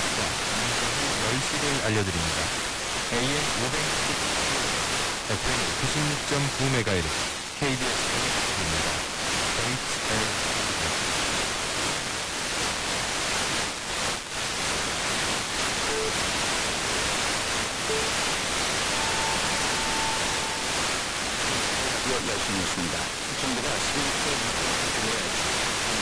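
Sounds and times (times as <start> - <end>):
radio static hiss: 0.0 - 26.0
short beeps: 15.9 - 16.2, 17.9 - 18.2, 18.9 - 20.7
long high time signal tone: 17.8 - 21.1.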